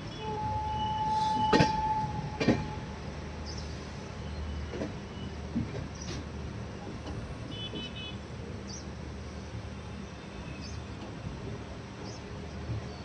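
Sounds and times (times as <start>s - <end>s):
train rumbling: 0.0s - 10.0s, 10.6s - 13.0s.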